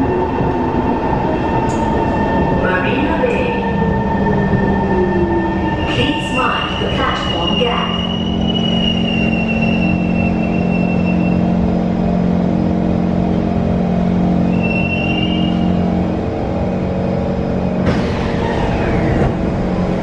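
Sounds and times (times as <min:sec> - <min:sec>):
train low hum: 0:00.0 - 0:20.0
train doors opening whine: 0:05.6 - 0:11.5, 0:14.4 - 0:16.0, 0:17.5 - 0:20.0
high squeal from running gear: 0:05.8 - 0:11.4, 0:14.5 - 0:15.8.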